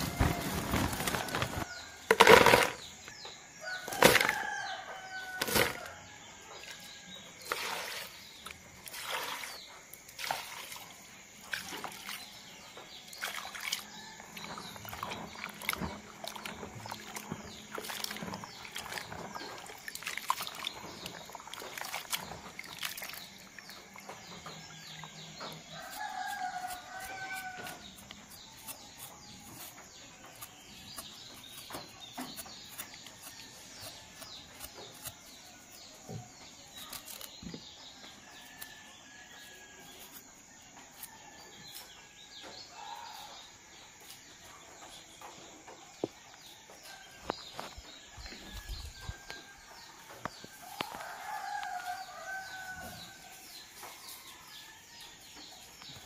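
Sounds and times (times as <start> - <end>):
plastic bag crinkling: 0.0 - 2.8
water squelching and splashing: 7.5 - 12.4, 13.1 - 13.9, 14.8 - 24.0
rooster crowing: 50.6 - 53.4.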